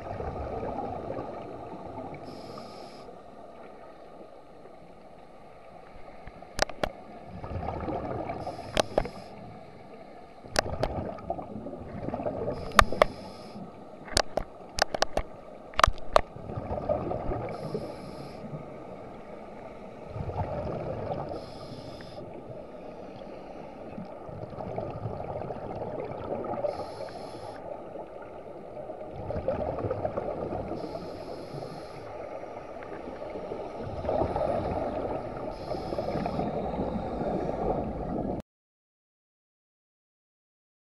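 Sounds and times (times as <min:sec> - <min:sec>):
breathing through scuba regulator: 0:02.2 - 0:03.2, 0:08.4 - 0:10.2, 0:12.4 - 0:13.8, 0:17.5 - 0:18.6, 0:21.2 - 0:23.8, 0:26.6 - 0:27.7, 0:30.7 - 0:32.4, 0:34.0 - 0:37.9
gurgling bubble bursts: 0:07.3 - 0:08.4, 0:16.4 - 0:17.5, 0:20.1 - 0:21.3, 0:29.1 - 0:30.6
sharp clicks: 0:12.7 - 0:13.2.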